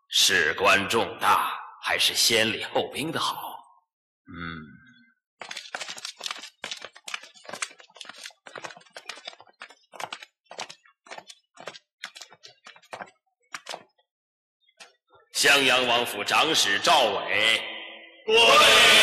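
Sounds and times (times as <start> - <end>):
footsteps on stone steps: 5.4 - 14.0.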